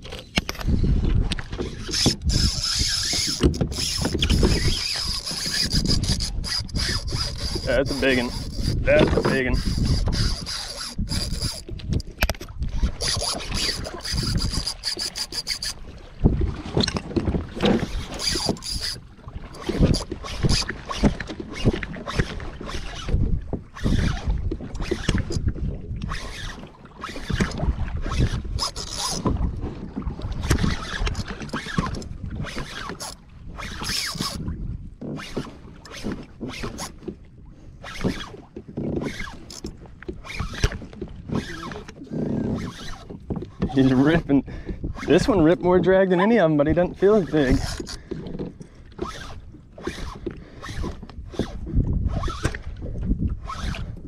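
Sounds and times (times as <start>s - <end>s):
wind buffeting microphone: 0.0s - 35.0s, 35.6s - 54.0s
water slapping against hull: 0.0s - 54.0s
fishing reel drag buzzing: 1.6s - 12.1s, 12.7s - 15.8s, 17.8s - 25.4s, 26.0s - 29.3s, 30.4s - 34.5s, 35.2s - 37.0s, 39.0s - 40.7s, 41.3s - 43.2s, 47.1s - 48.0s, 48.9s - 52.6s, 53.4s - 54.0s.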